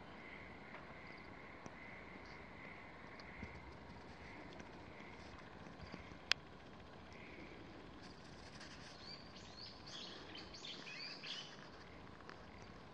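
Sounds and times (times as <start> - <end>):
faint background noise: 0.0 - 12.9
bird chirping: 8.8 - 11.8.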